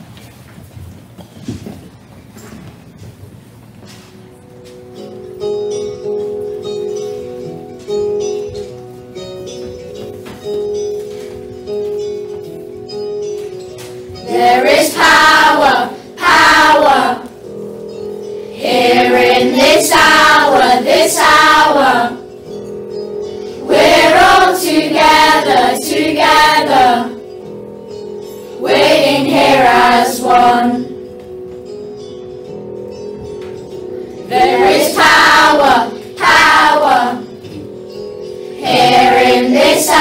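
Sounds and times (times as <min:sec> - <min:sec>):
instrumental accompaniment: 0:02.3 - 0:40.0
children singing: 0:14.2 - 0:17.5, 0:18.5 - 0:22.3, 0:23.6 - 0:27.3, 0:28.6 - 0:31.0, 0:34.2 - 0:37.5, 0:38.5 - 0:40.0.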